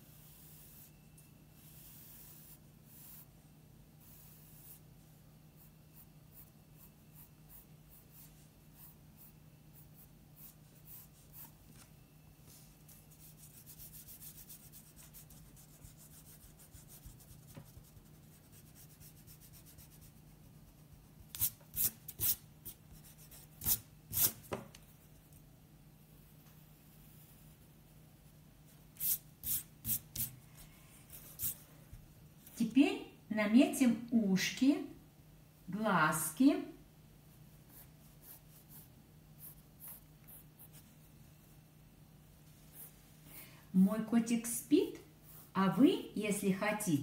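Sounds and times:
pencil strokes on paper: 0:00.0 - 0:03.4, 0:04.0 - 0:04.9, 0:05.6 - 0:24.4, 0:29.0 - 0:31.6, 0:37.3 - 0:41.6, 0:42.6 - 0:43.0
eraser rubbing on paper: 0:12.9 - 0:24.4.

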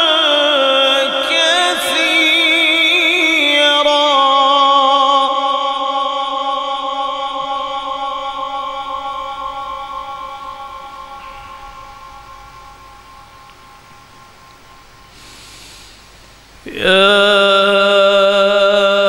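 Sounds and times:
man reciting melodically over pa: 0:00.0 - 0:12.7, 0:16.6 - 0:19.0.

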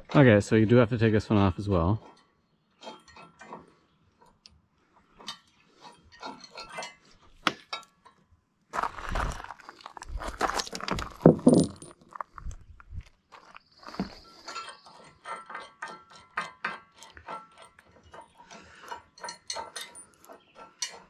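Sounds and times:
metal nuts and washers clinking: 0:01.9 - 0:08.3, 0:10.6 - 0:12.1, 0:14.0 - 0:21.0
parts knocking on wooden board: 0:11.2 - 0:11.9.

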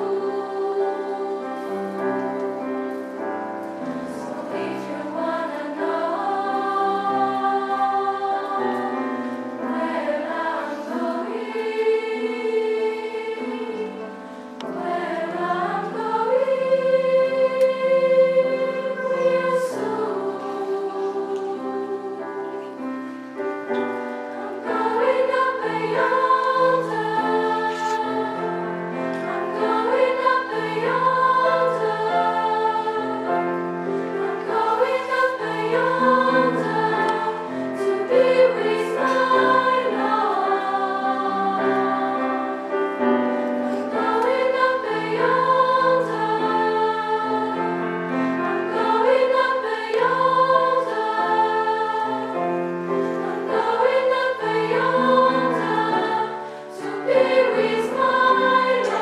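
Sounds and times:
girls' choir singing: 0:00.0 - 0:59.0.

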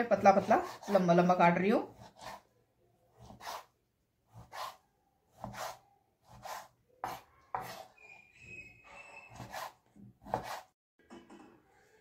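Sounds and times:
knife slicing chicken: 0:03.2 - 0:03.7, 0:04.3 - 0:07.9, 0:09.3 - 0:10.7.

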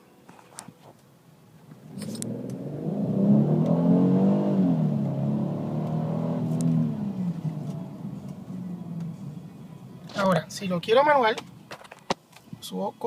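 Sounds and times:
car engine accelerating: 0:01.7 - 0:10.2.

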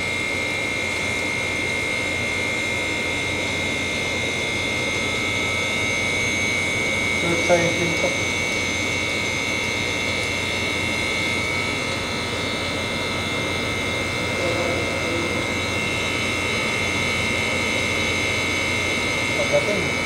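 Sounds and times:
machine droning with high whine: 0:00.0 - 0:20.0.

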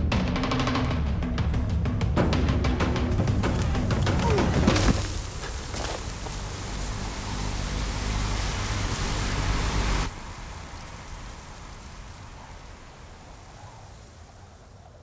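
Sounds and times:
swarm of moth wings fluttering: 0:04.6 - 0:15.0.

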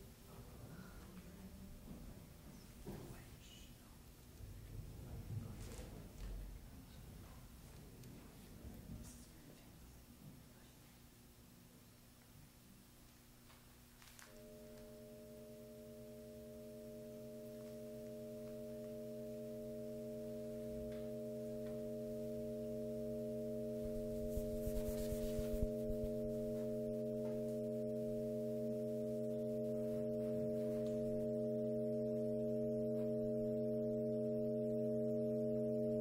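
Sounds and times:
electronic drone: 0:14.3 - 0:36.0
rubbing and crackling noises: 0:23.8 - 0:27.6.

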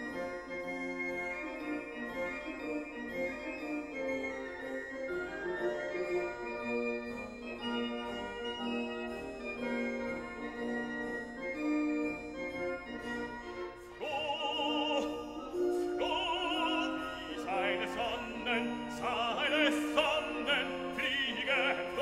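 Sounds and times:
operatic singing: 0:13.9 - 0:22.0.

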